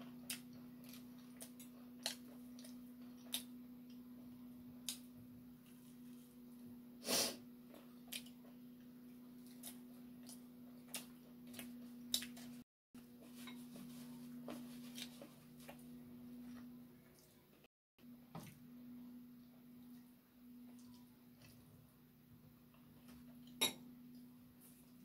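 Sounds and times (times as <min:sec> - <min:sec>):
chewing crispy fried chicken: 0:00.0 - 0:06.7, 0:07.6 - 0:12.6
steady low hum: 0:00.0 - 0:25.0.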